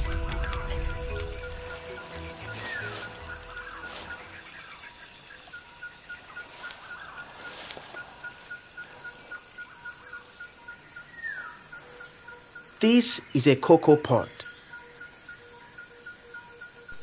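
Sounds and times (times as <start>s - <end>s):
regular pipping call: 0.0s - 5.5s
high insect drone: 0.0s - 17.0s.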